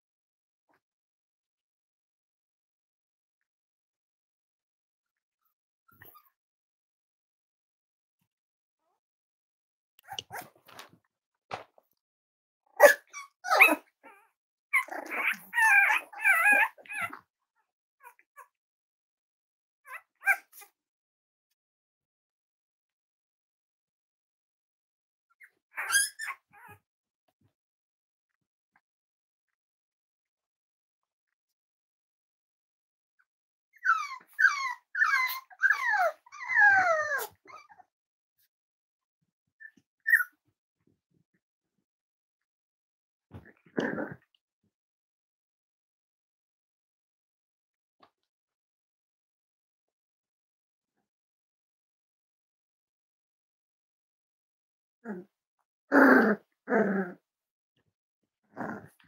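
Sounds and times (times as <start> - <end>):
puppies whining: 12.8 - 17.2, 25.4 - 26.8, 33.8 - 37.8, 39.6 - 40.4
puppies yipping and barking: 12.8 - 17.2, 25.4 - 26.8, 33.8 - 37.8, 39.7 - 40.3.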